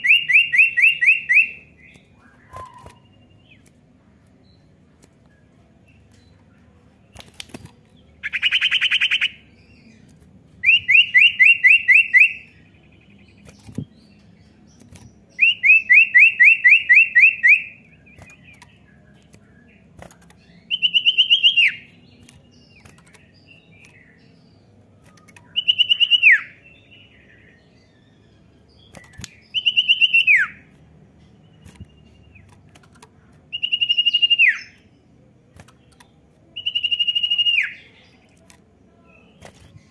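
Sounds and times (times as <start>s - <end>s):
bird trilling: 2.2s - 3.3s, 25.3s - 26.6s, 36.6s - 37.8s
bird whistled notes dropping in pitch: 2.4s - 3.0s.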